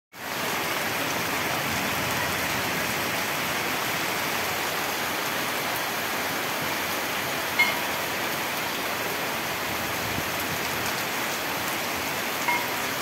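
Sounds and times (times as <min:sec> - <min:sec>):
heavy rain on leaves: 0:00.2 - 0:13.0.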